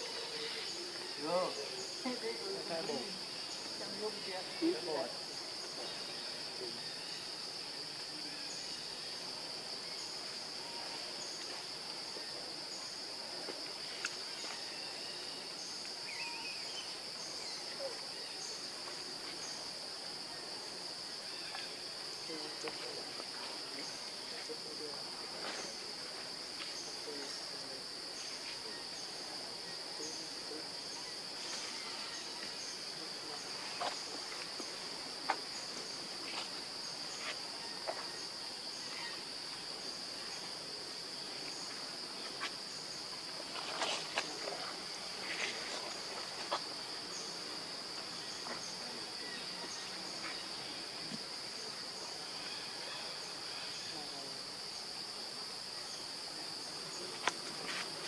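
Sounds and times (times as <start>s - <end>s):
insects droning: 0.0s - 58.0s.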